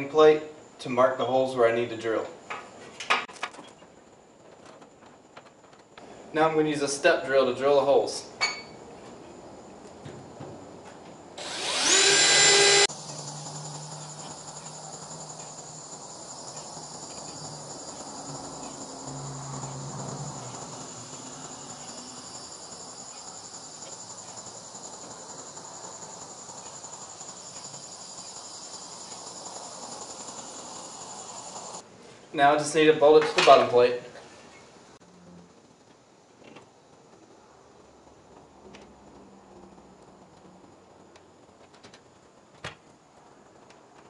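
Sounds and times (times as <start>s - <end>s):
cordless drill whirring: 11.4s - 19.1s
high insect trill: 11.4s - 31.8s.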